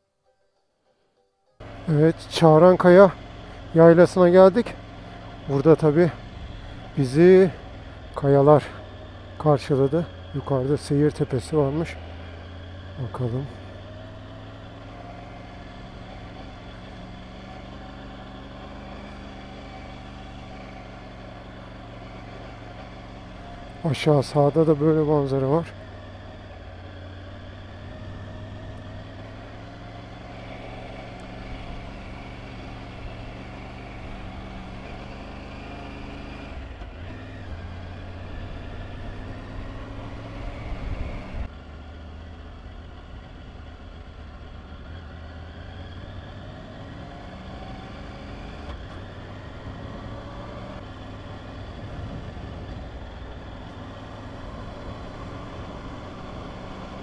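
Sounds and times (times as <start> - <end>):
motorcycle engine running: 1.6 - 57.0.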